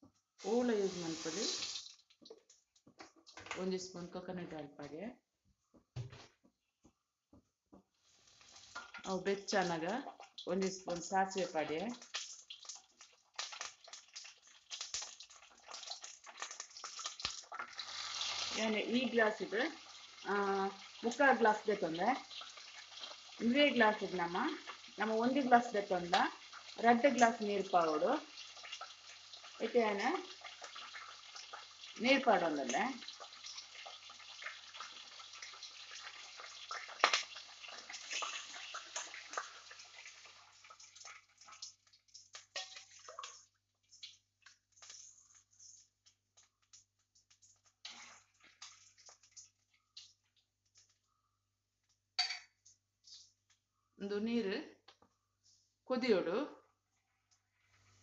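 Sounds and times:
seeds sputtering in hot oil: 0.0 - 3.4, 7.8 - 51.0
water pouring and splashing: 0.4 - 2.5, 8.1 - 45.8, 47.2 - 50.8.

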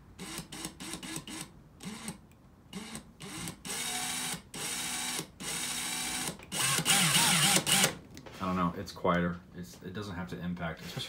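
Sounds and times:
cordless screwdriver motor running: 2.8 - 8.0.

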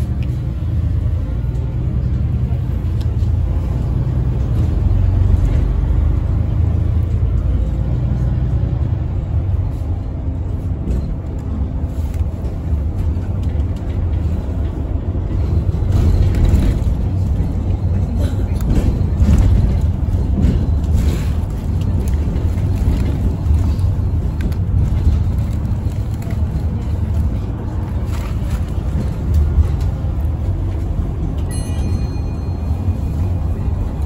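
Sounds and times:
bus rumbling: 0.0 - 34.0.

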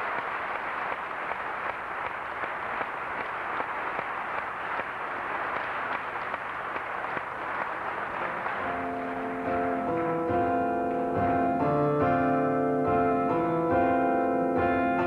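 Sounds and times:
audience applause: 0.0 - 11.6.

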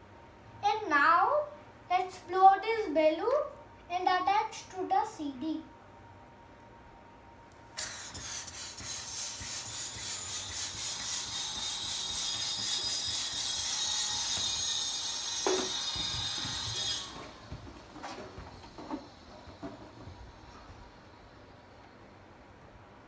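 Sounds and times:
hand pump inflating balloon: 7.8 - 20.9.

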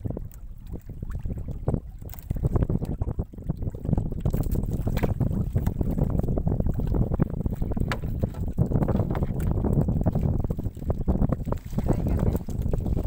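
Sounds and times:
wind on the microphone: 0.0 - 13.0
knocks on a boat: 4.9 - 5.8, 7.8 - 9.4.

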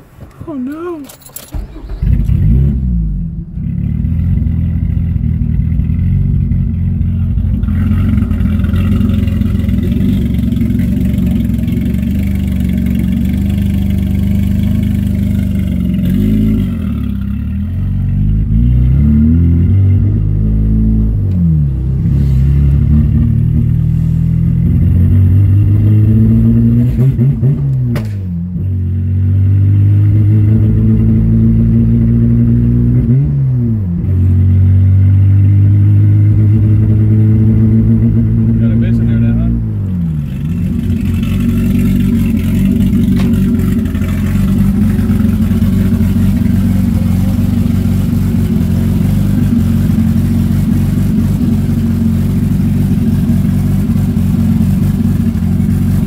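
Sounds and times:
engine pitch shifting with gear changes: 0.0 - 56.0
car engine accelerating hard: 1.5 - 56.0.

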